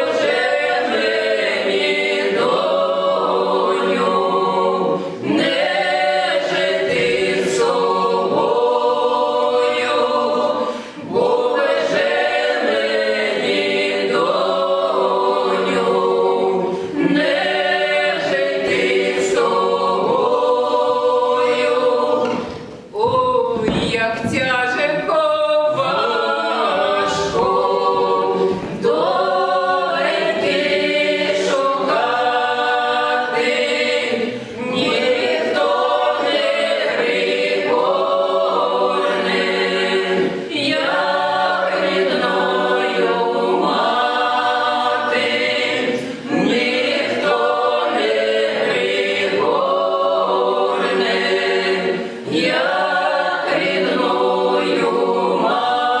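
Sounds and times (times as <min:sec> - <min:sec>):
choir singing a cappella: 0:00.0 - 0:56.0.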